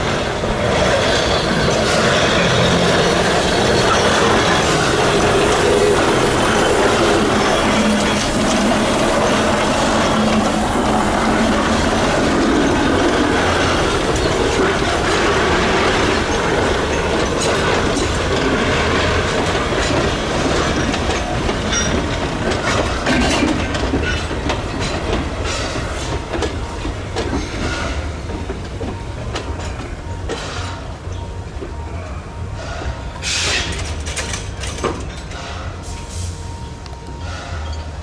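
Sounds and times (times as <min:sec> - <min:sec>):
wheels clicking over rail joints: 0:00.0 - 0:35.9
steam train rumbling past: 0:00.0 - 0:38.0.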